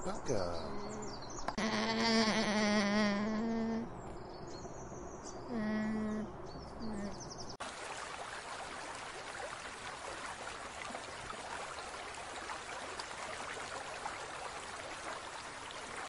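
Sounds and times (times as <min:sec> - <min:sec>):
water rushing: 0:07.6 - 0:16.0.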